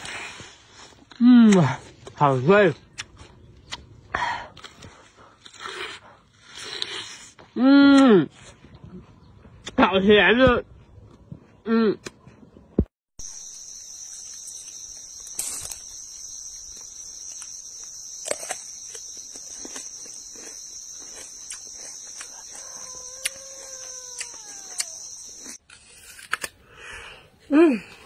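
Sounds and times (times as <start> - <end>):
insect chorus: 13.2 - 25.6.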